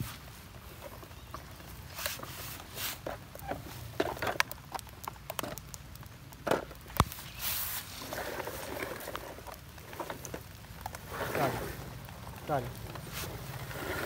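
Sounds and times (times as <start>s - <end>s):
footsteps through grass and leaves: 7.0s - 9.3s, 12.5s - 14.0s.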